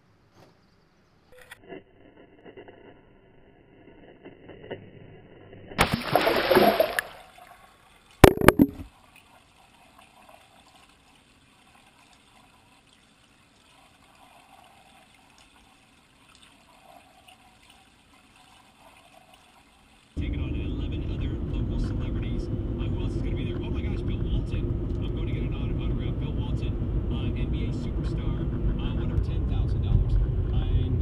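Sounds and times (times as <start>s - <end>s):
loud splash into water: 5.8s - 7.4s
muffled underwater sound: 8.2s - 8.9s, 20.2s - 31.0s
sharp impact: 8.2s - 8.9s.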